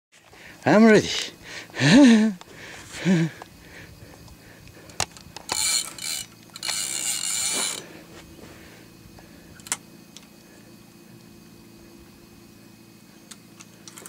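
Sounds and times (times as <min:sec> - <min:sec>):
fishing reel drag buzzing: 0:04.8 - 0:10.3.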